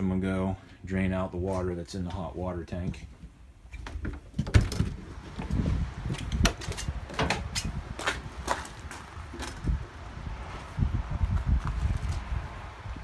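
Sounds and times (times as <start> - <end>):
trailer door opening: 3.8 - 8.7
footsteps on gravel: 7.6 - 9.8.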